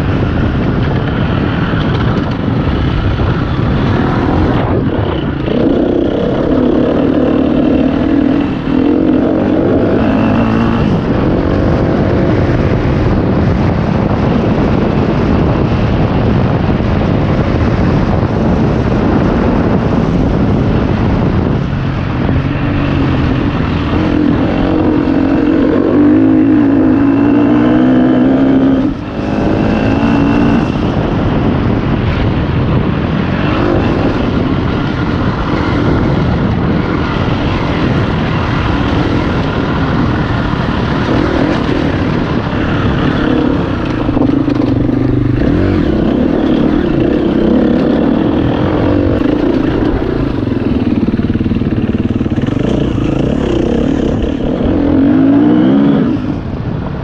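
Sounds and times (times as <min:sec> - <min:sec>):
dirt bike engine revving: 0:02.6 - 0:13.2, 0:21.0 - 0:31.7, 0:33.1 - 0:56.4.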